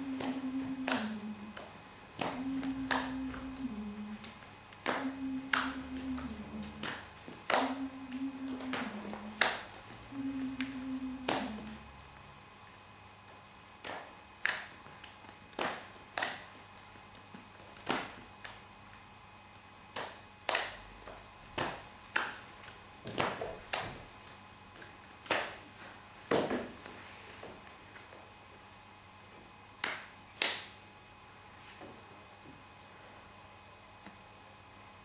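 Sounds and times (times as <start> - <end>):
finger snaps: 29.8 - 30.8.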